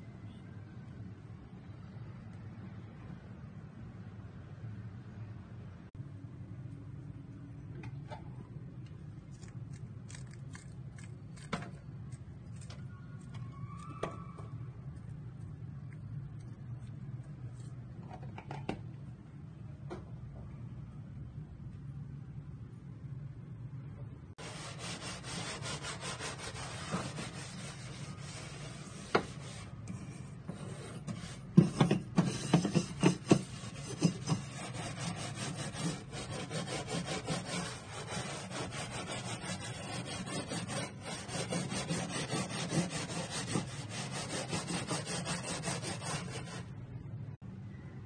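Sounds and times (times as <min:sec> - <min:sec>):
steel wool scrubbing a stovetop: 0:24.4 - 0:46.7.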